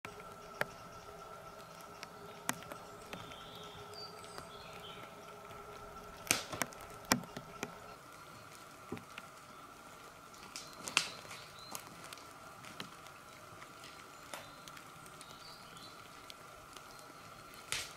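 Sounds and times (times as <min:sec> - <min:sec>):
faint steady hum: 0:00.0 - 0:17.9
sticks snapping: 0:00.2 - 0:07.8, 0:10.4 - 0:13.1, 0:17.5 - 0:17.9
footsteps on dry twigs: 0:00.2 - 0:09.5, 0:10.1 - 0:17.9.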